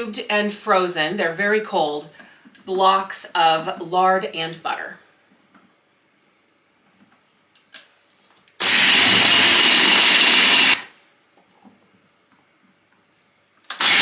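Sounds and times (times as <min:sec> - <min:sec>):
food processor motor running: 0:08.6 - 0:10.9, 0:13.7 - 0:14.0.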